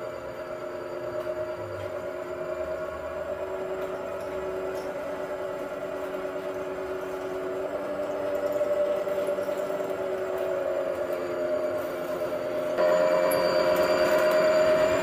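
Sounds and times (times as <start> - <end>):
miniature train humming: 0.0 - 15.0.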